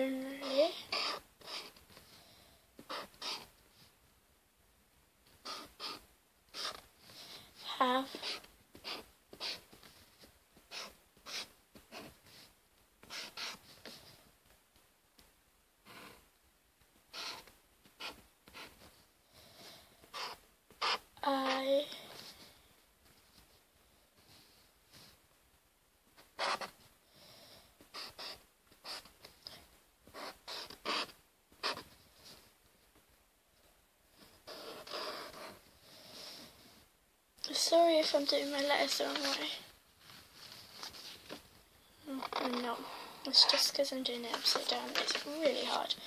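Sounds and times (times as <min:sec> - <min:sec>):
marker scraping on paper: 0:00.4 - 0:02.0, 0:02.8 - 0:03.5, 0:05.4 - 0:14.1, 0:15.8 - 0:16.2, 0:17.1 - 0:18.9, 0:20.1 - 0:21.6, 0:26.3 - 0:26.8, 0:27.9 - 0:29.2, 0:30.1 - 0:32.4, 0:34.2 - 0:36.5, 0:37.5 - 0:39.5, 0:42.1 - 0:46.0.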